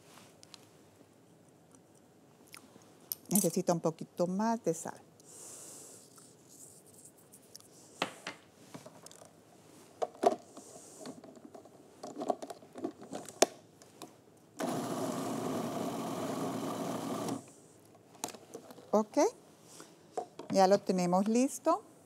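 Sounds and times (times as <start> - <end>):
food processor blending: 14.6 - 17.5.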